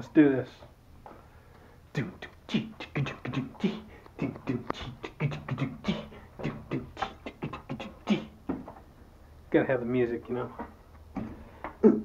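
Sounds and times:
man beatboxing: 1.9 - 8.4.

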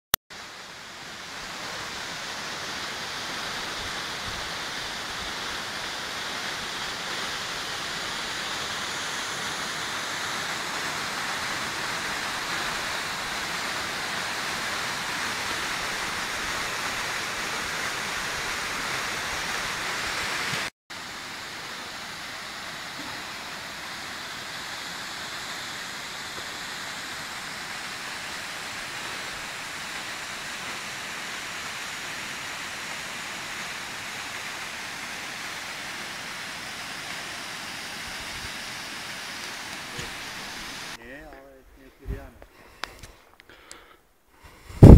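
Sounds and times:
quieter water rushing: 0.3 - 44.9
waterfall pouring onto rocks: 0.4 - 41.0.

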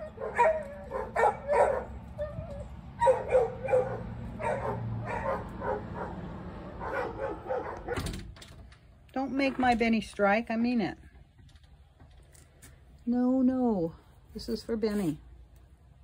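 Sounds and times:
dogs barking: 0.0 - 8.2.

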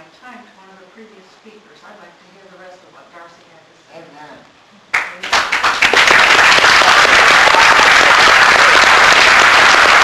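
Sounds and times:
audience applauding: 4.9 - 10.0.

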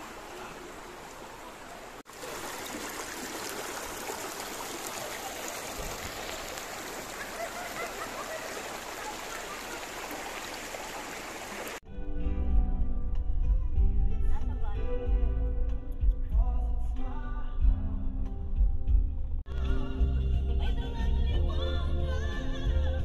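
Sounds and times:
stream rushing over stones: 0.0 - 11.8.

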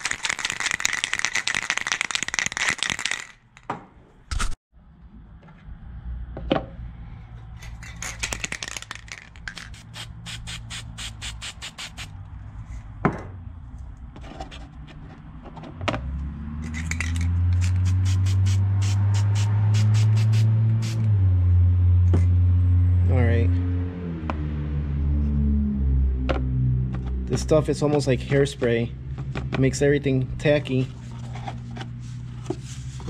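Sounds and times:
aerosol can mixing ball rattling: 0.0 - 3.6, 8.0 - 10.0.

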